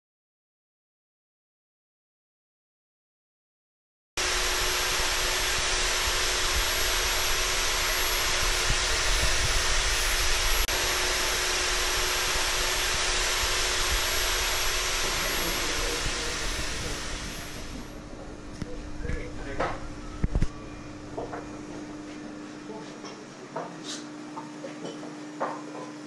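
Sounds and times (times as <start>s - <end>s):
machine blowing air: 4.2s - 18.1s.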